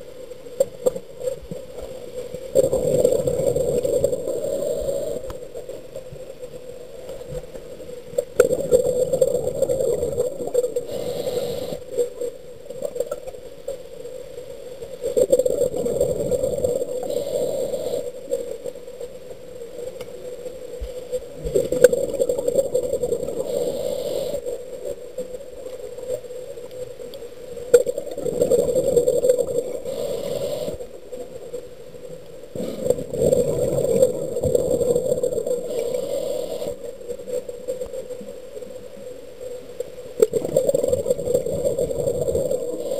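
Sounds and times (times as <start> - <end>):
muffled underwater noise: 0.1 - 42.9.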